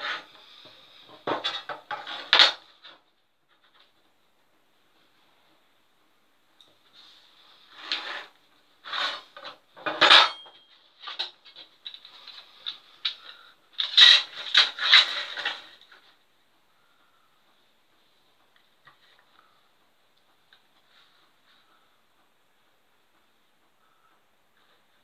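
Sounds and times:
rulers clattering and scraping on board: 0:00.0 - 0:03.0, 0:07.6 - 0:16.1.

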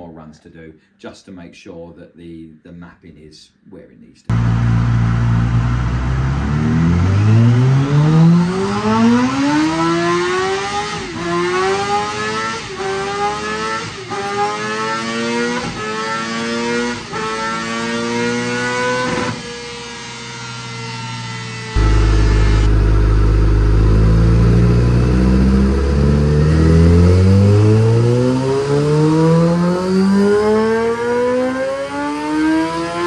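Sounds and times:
motorcycle engine revving: 0:04.3 - 0:33.0.

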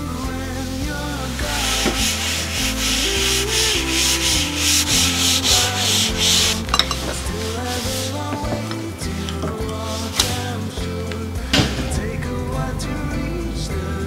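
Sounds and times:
cloth wiping a desktop: 0:01.3 - 0:08.6.

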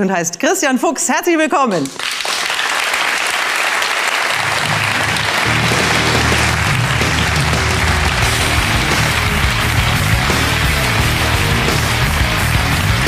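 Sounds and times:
audience applauding: 0:01.8 - 0:13.0
music with rhythmic bass line: 0:04.4 - 0:13.0.

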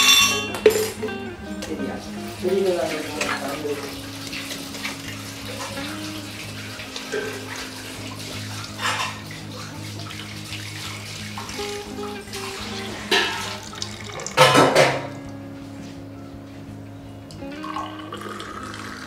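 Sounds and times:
background music: 0:00.0 - 0:19.0
liquid splashing into steel bowl: 0:02.8 - 0:15.2.

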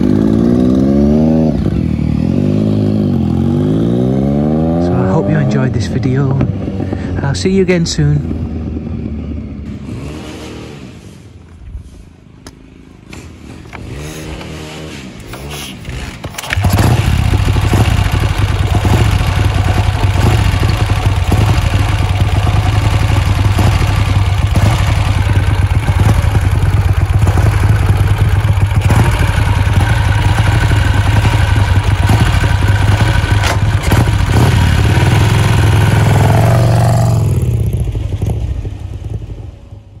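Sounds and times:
motorcycle engine running: 0:00.0 - 0:10.8, 0:13.3 - 0:40.0
motorcycle engine kick-started: 0:15.2 - 0:35.8.

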